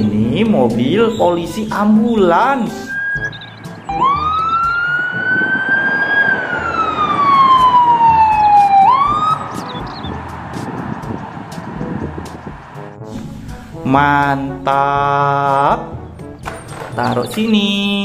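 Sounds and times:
passing traffic road noise: 0.0 - 13.9
ambulance siren wailing: 2.6 - 13.0.

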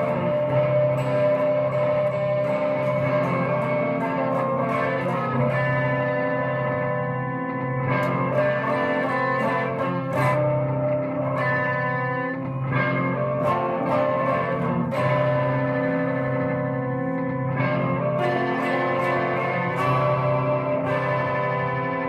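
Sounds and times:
distorted electric guitar chords: 0.0 - 22.0.

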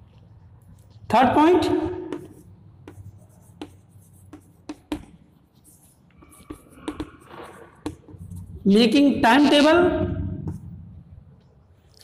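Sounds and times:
chalk scratching on blackboard: 1.5 - 9.0
chalk tapping on blackboard: 1.6 - 8.5.

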